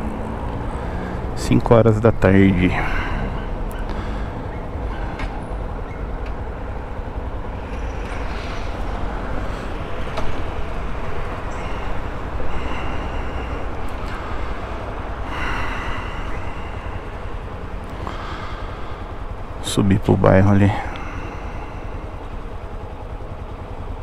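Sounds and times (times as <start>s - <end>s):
wind and road noise: 0.0s - 24.0s
motorcycle engine running: 2.8s - 19.7s, 20.8s - 24.0s.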